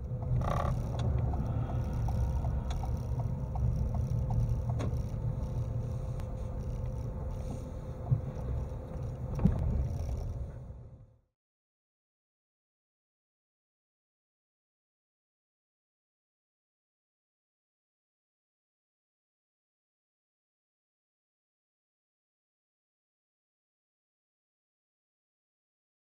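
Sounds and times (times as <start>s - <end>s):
light ticking: 0.0s - 10.5s
vehicle engine and tyres rumbling: 0.0s - 11.3s.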